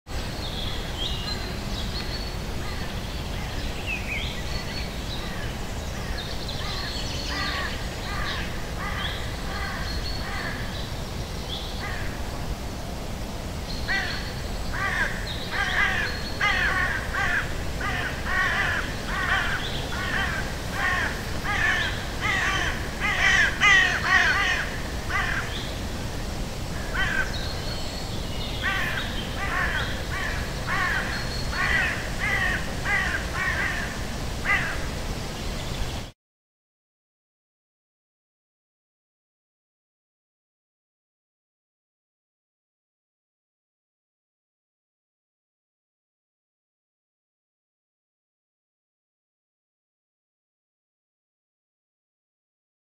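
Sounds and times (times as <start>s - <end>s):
birds calling harshly: 0.3s - 12.2s, 13.7s - 26.1s, 26.7s - 36.1s.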